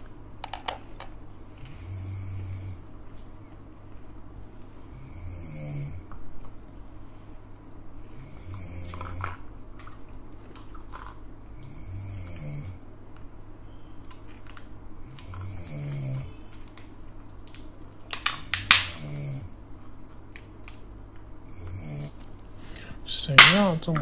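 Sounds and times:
cartoon snoring: 1.6 - 2.8, 4.9 - 6.1, 8.1 - 9.4, 11.6 - 12.8, 15.0 - 16.3, 18.8 - 19.6, 21.5 - 22.1.

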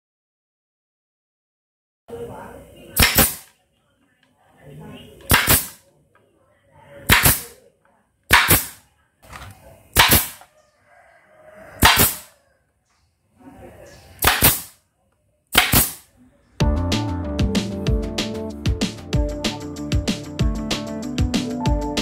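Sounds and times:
pneumatic nailer firing: 3.0 - 3.5, 5.3 - 5.8, 7.1 - 7.6, 8.3 - 8.8, 9.9 - 10.5, 11.8 - 12.3, 14.2 - 14.8, 15.5 - 16.1.

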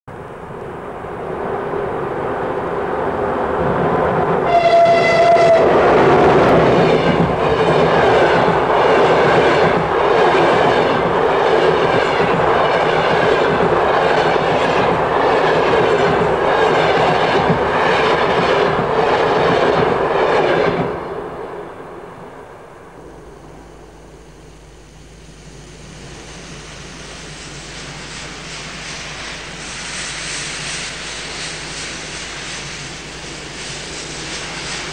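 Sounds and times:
train wheels clattering over rails: 3.6 - 21.0
train horn: 4.4 - 7.2
low rumble with hum: 21.7 - 34.9.

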